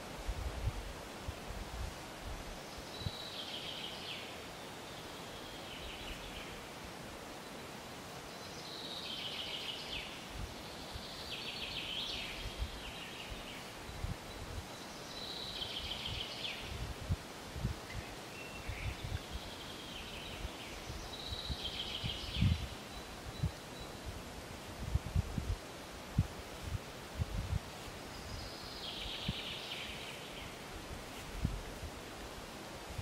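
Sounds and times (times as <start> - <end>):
steady outdoor hiss: 0.0 - 33.0.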